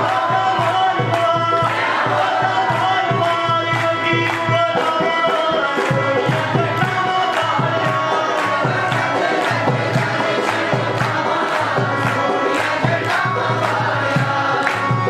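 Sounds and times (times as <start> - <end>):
man singing into a microphone: 0.0 - 10.0
group clapping: 0.0 - 15.0
hand drum rhythm: 0.0 - 15.0.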